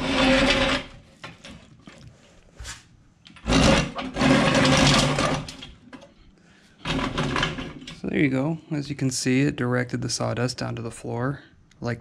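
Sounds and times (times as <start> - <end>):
metal base scraping on concrete: 0.0 - 1.5, 3.4 - 5.6.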